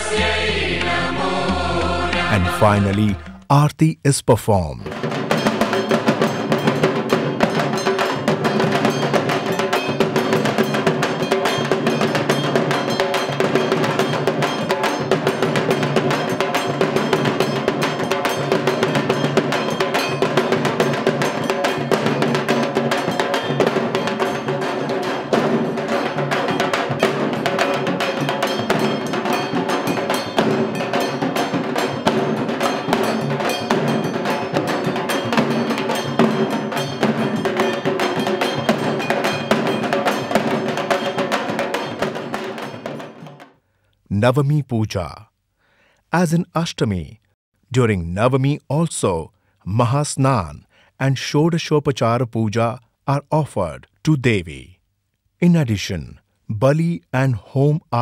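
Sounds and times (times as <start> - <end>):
fast drumming and percussion: 2.4 - 43.6.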